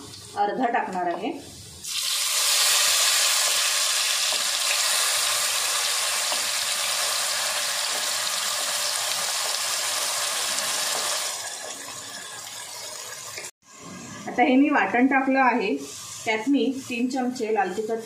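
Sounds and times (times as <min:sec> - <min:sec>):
paste sizzling in hot oil: 0:01.8 - 0:13.5.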